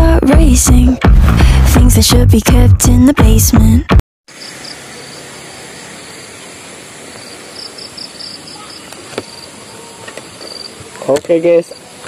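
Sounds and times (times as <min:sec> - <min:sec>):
insects chirping in pulses: 0:04.3 - 0:12.0
steady outdoor hiss: 0:04.3 - 0:12.0.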